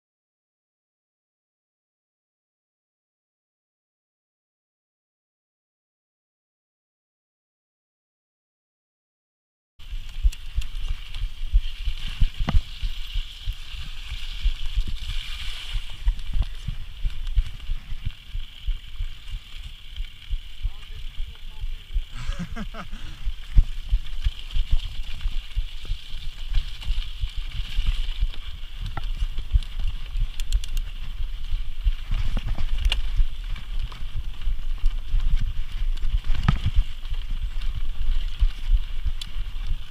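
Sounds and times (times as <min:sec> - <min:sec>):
steady high hiss: 0:09.8 - 0:24.6
bike clicks and rattles: 0:09.8 - 0:39.9
wind buffeting and ground noise: 0:09.8 - 0:39.9.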